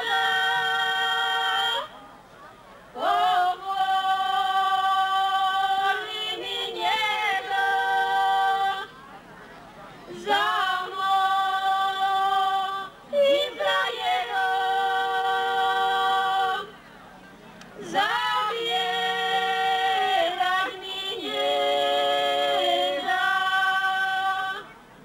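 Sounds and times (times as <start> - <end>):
women singing unaccompanied: 0.0 - 2.0, 2.9 - 9.0, 10.1 - 16.8, 17.8 - 25.0.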